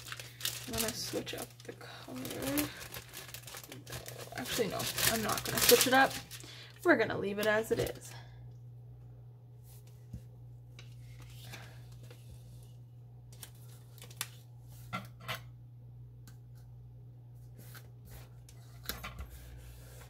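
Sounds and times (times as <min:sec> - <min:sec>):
paper crackling and clicking: 0:00.0 - 0:06.4, 0:13.3 - 0:14.4
low electrical hum: 0:00.0 - 0:20.0.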